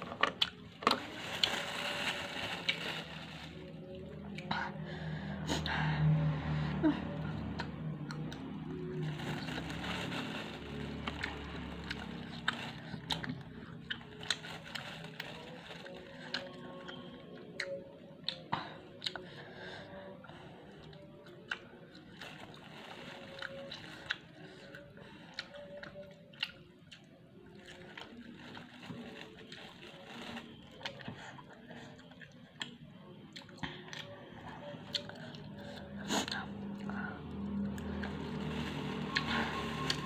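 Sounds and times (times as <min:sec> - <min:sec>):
person chewing crunchy snacks: 0:07.4 - 0:17.0.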